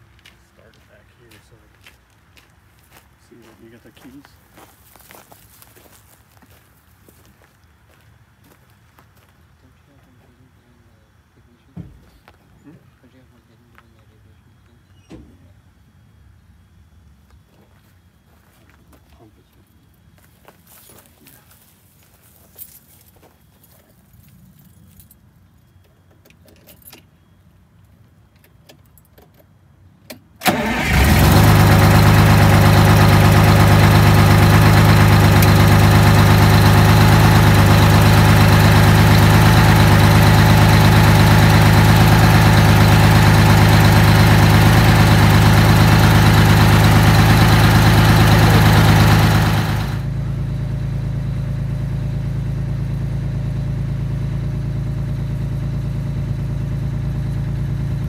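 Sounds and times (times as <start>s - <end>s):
diesel engine starting and idling: 30.4s - 58.0s.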